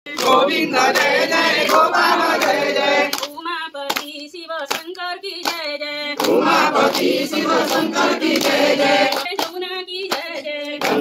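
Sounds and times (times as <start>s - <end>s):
group singing devotional song: 0.1s - 3.4s, 5.6s - 11.0s.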